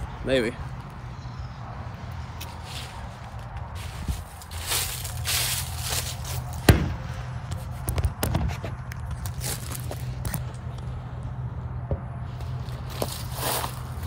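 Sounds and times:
footsteps crunching through leaves: 2.1 - 7.8, 9.2 - 10.2, 12.4 - 14.0.

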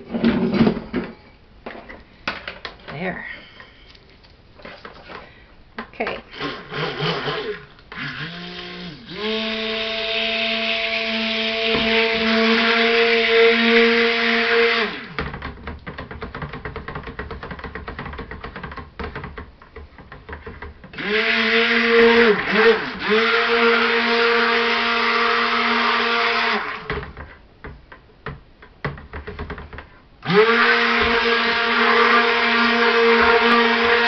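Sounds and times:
stick blender motor humming: 6.3 - 15.2, 21.0 - 27.0, 30.2 - 34.0
blender knocking against bucket: 11.6 - 12.4, 28.2 - 34.0.

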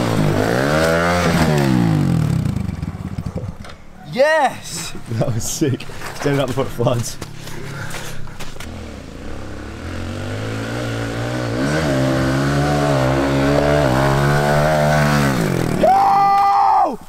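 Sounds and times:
pit bike engine running: 0.0 - 3.6.

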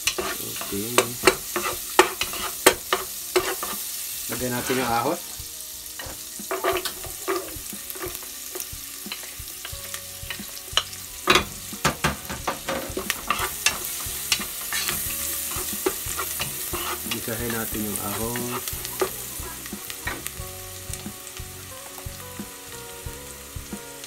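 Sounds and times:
wooden spoon scraping a pot: 0.0 - 3.8, 4.4 - 5.1, 6.0 - 10.9, 12.2 - 20.3
garlic sizzling in butter: 0.0 - 24.0.

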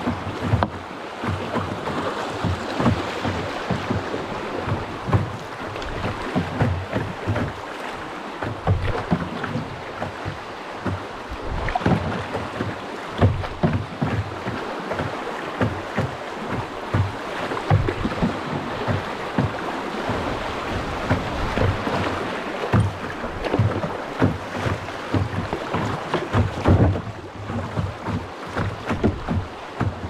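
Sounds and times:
water splashing around boat: 0.0 - 30.0
wind buffeting microphone: 16.7 - 25.7.

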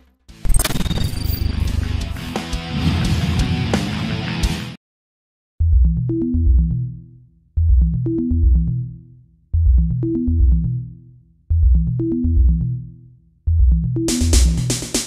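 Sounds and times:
electronic synth music: 5.7 - 15.0.

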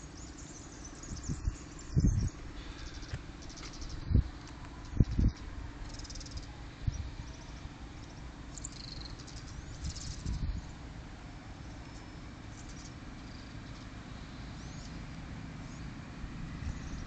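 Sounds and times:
small birds chirping: 0.0 - 17.0
steady low hum: 0.0 - 17.0
wind buffeting microphone: 1.0 - 8.3, 9.3 - 10.8.

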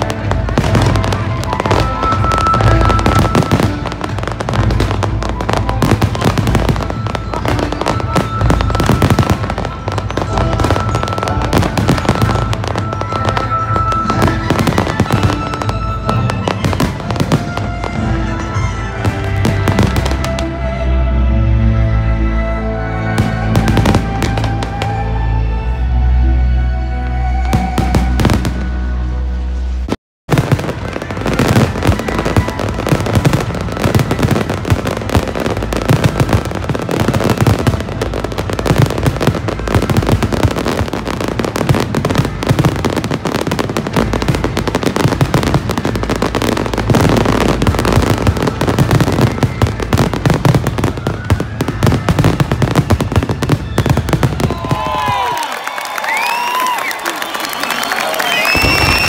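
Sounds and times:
fireworks crackling and banging: 0.0 - 20.9, 22.9 - 25.2, 27.4 - 59.0
crowd cheering and whistling: 0.0 - 59.0
music: 0.0 - 59.0
crowd clapping: 53.0 - 59.0.

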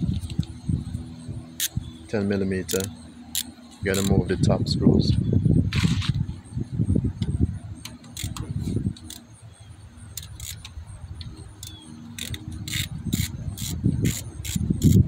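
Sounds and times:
muffled handling rumble: 0.0 - 15.0
ratchet wrench clicking: 1.6 - 1.8, 2.6 - 4.2, 7.8 - 9.3, 10.1 - 15.0.

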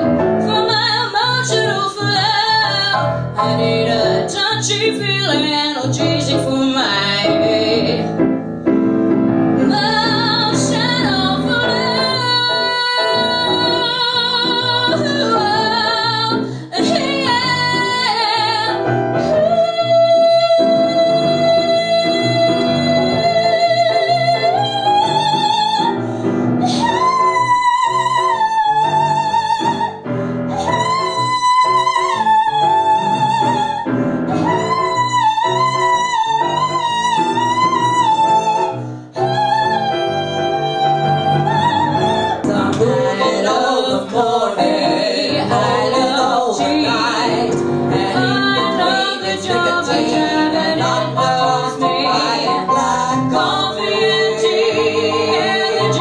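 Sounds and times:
piano accompaniment: 0.0 - 56.0
woman singing with vibrato: 0.4 - 8.1, 9.6 - 26.0, 30.6 - 56.0
women singing together: 9.7 - 18.8, 41.5 - 56.0.

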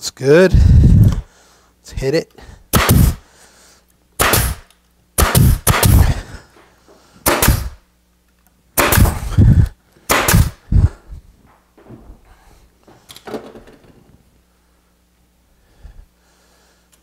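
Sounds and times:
pneumatic nailer firing: 2.7 - 3.2, 4.2 - 6.2, 7.2 - 7.8, 8.8 - 10.7.

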